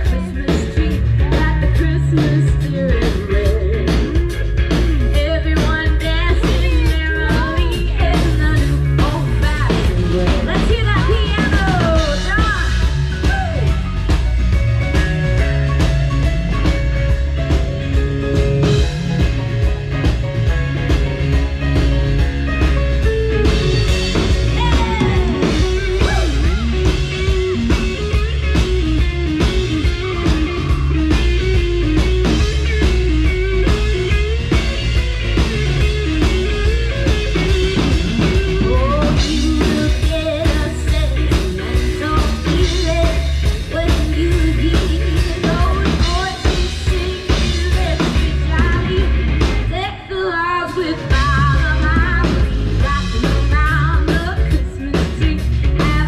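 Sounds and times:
person singing: 0.0s - 4.4s, 5.0s - 14.1s, 24.2s - 27.8s, 38.2s - 56.0s
bass: 0.0s - 56.0s
drum kit: 0.0s - 56.0s
electric guitar: 0.0s - 56.0s.

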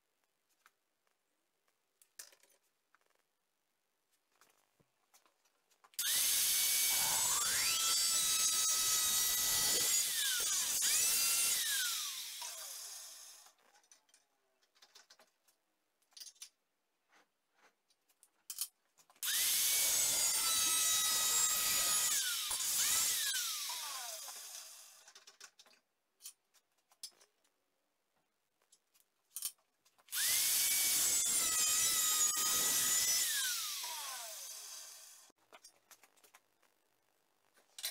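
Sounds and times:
angle grinder cutting steel: 6.0s - 13.6s, 19.2s - 25.1s, 30.1s - 35.3s.

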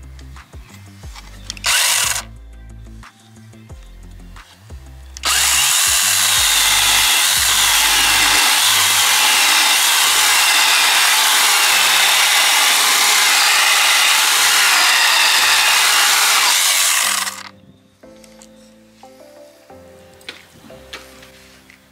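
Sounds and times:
chainsaw cutting wood: 1.5s - 2.3s, 5.2s - 17.5s.

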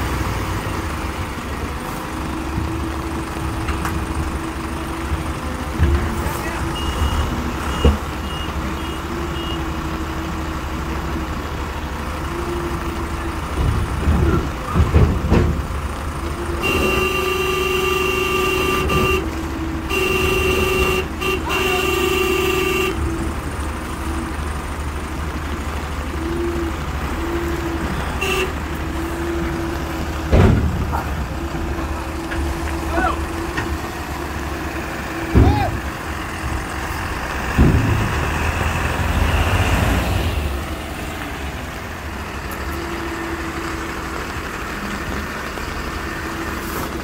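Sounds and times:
diesel engines rumbling: 0.0s - 47.0s
reversing alarm beeping: 6.6s - 9.7s
vehicle horn blasts: 16.6s - 23.1s, 28.2s - 28.6s.

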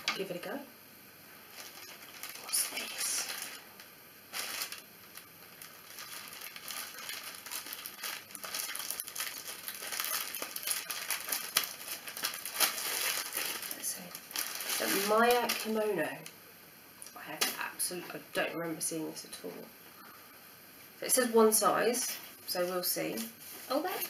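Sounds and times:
packaging crinkling and rustling: 1.5s - 16.0s.

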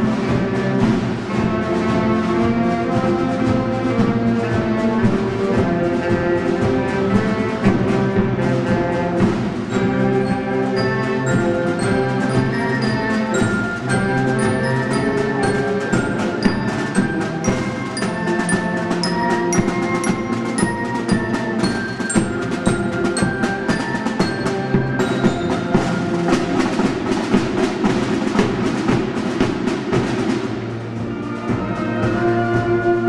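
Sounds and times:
marching band playing a march: 0.0s - 33.0s
snare and bass drums: 0.0s - 33.0s
glockenspiel notes: 1.4s - 27.6s.

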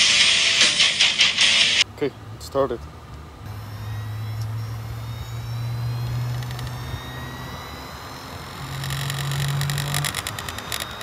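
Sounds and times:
hard drive motor hum and whine: 2.9s - 11.0s.

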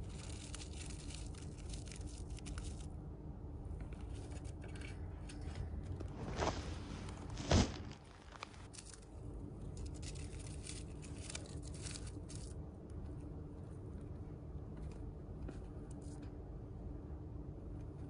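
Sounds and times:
chipmunk tearing paper: 0.0s - 2.9s, 7.2s - 12.6s.

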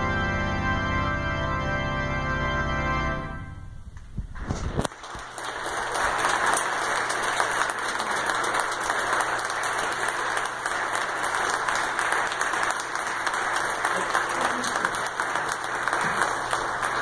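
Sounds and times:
audience applauding: 4.8s - 17.0s.

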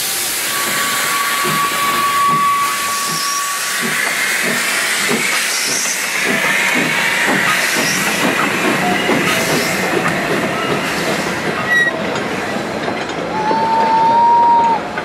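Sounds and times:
thin wheel squeal: 0.5s - 4.2s
train wheels clicking over rail joints: 0.6s - 15.0s.

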